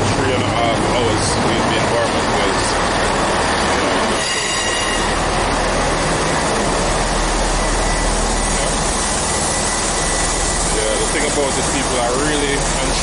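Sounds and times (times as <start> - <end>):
train rumbling and humming: 0.0 - 13.0
high steady brake squeal: 4.0 - 5.3, 7.6 - 12.6.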